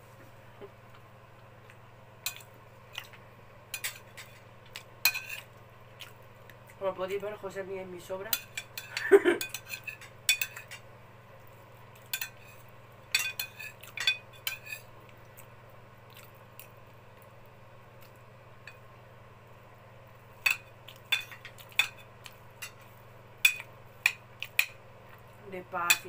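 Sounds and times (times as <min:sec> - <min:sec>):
cutlery clinking on a plate: 0:08.4 - 0:10.8, 0:12.1 - 0:14.9.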